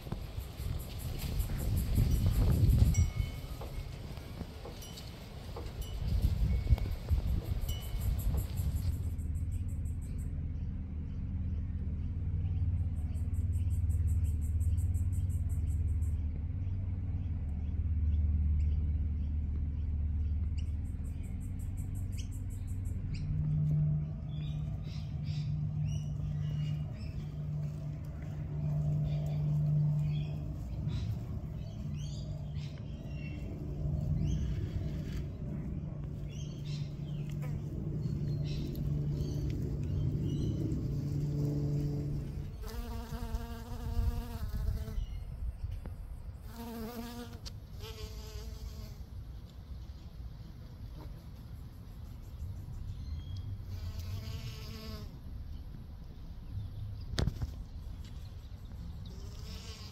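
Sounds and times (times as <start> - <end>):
low rumble with hum: 0.0 - 59.9
small birds chirping: 6.3 - 41.3, 51.6 - 59.9.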